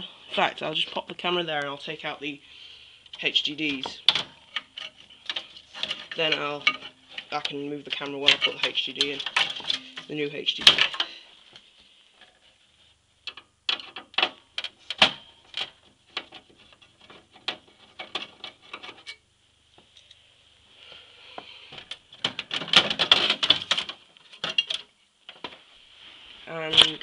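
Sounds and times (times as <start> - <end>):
clicks and rattles of metal parts: 3.1 - 11.2, 13.3 - 19.2, 21.7 - 25.5.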